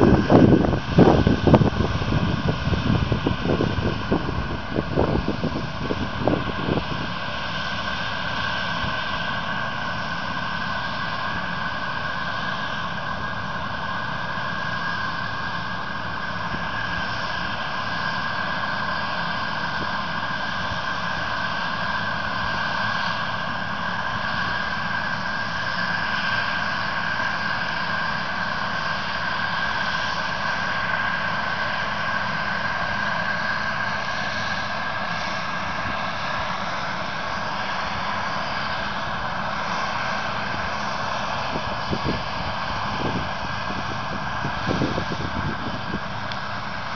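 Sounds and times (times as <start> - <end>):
combine harvester droning: 0.0 - 46.9.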